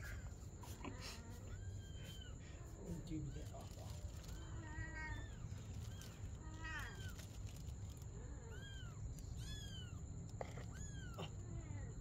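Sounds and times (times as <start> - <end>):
kitten mewing: 8.5 - 11.8.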